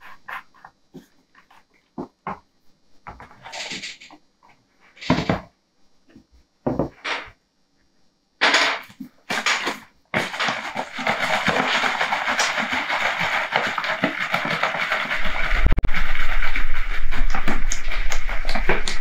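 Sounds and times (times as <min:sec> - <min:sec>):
glaze sloshing in shaken bottle: 0:09.4 - 0:19.0.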